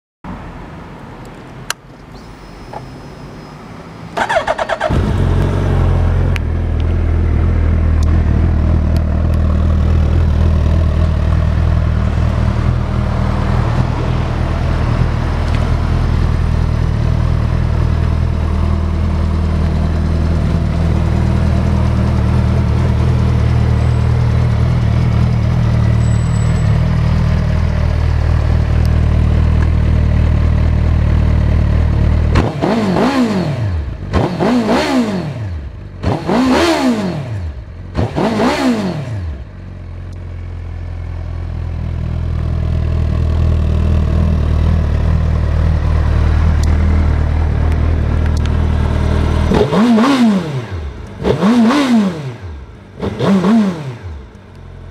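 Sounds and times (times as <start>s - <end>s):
motorcycle engine idling: 4.2s - 13.2s, 14.2s - 32.3s, 39.4s - 49.6s.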